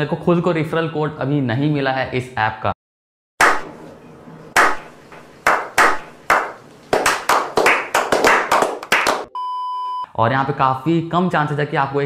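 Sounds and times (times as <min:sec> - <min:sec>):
hands clapping: 0:03.4 - 0:03.7, 0:04.6 - 0:09.3.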